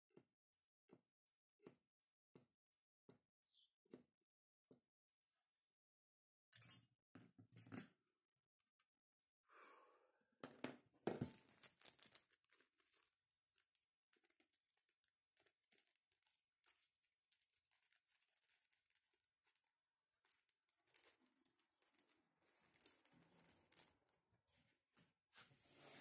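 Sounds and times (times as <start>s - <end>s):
plastic sheet crinkling: 11.1s - 24.1s.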